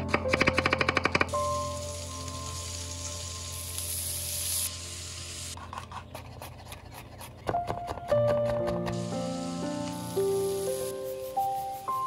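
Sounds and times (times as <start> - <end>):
onion sizzling in hot oil: 1.3 - 5.6, 8.9 - 10.9.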